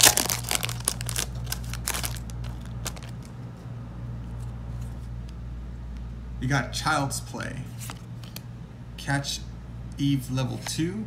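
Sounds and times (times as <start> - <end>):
plastic wrapper crinkling: 0.0 - 3.3
card handling rustles: 0.0 - 3.4, 7.7 - 8.5.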